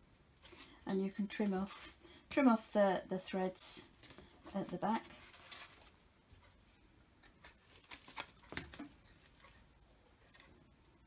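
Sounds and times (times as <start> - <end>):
paper page rustling: 4.0 - 6.0, 7.7 - 8.9.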